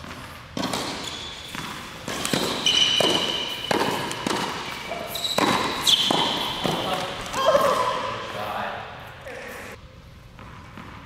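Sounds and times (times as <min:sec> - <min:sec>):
tennis ball bounces: 0:00.0 - 0:07.9
tennis racket hits: 0:00.0 - 0:07.9
shoe squeaks: 0:00.6 - 0:08.0.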